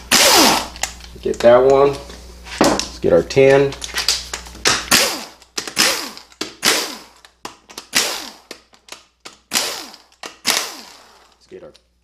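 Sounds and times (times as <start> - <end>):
power tool metallic clacks: 9.5 - 11.4.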